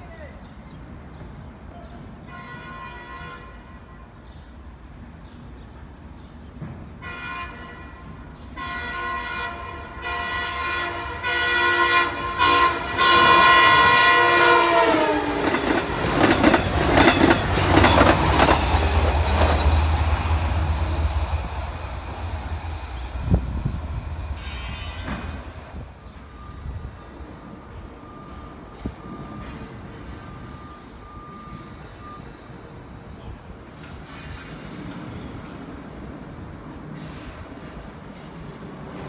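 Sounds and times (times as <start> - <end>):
train air horn blasts: 2.3 - 4.2, 7.0 - 15.4
diesel locomotive rumble: 11.2 - 32.0
train wheels clattering: 15.3 - 25.7.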